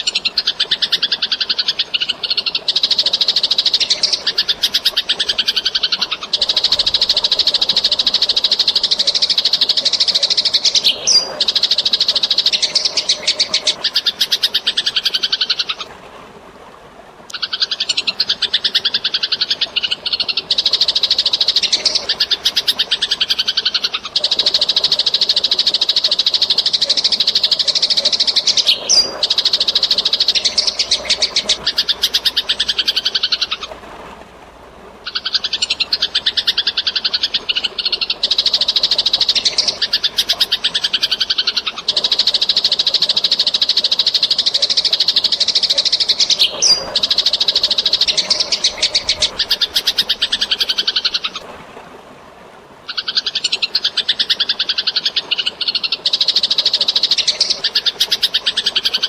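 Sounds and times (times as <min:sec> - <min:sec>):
running water: 0:00.0 - 0:59.0
sparrows chattering: 0:19.7 - 0:25.5, 0:26.8 - 0:33.7, 0:35.1 - 0:42.7, 0:45.3 - 0:51.3.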